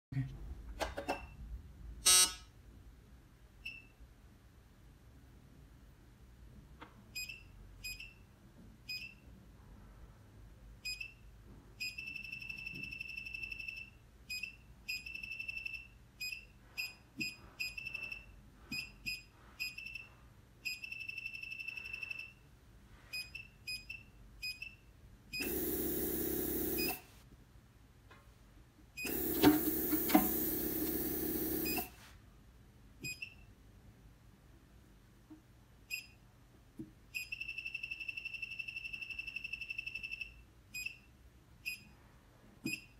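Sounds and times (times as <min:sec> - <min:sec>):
touchscreen beeping: 0:25.4 - 0:27.0, 0:29.0 - 0:31.9.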